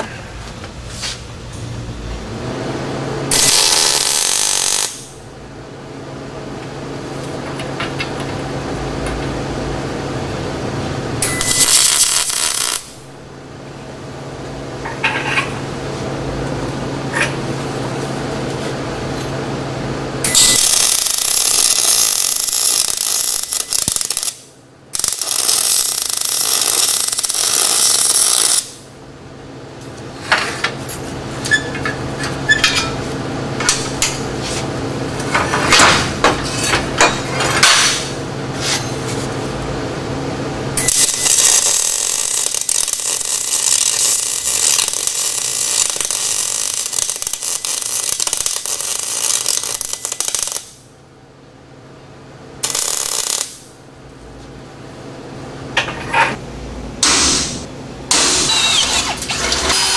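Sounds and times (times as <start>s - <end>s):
low steady hum: 0.0s - 58.2s
welding arc crackling sizzle: 2.8s - 5.5s, 7.2s - 13.4s, 20.1s - 29.0s, 40.7s - 50.9s, 52.6s - 53.8s, 57.0s - 59.9s.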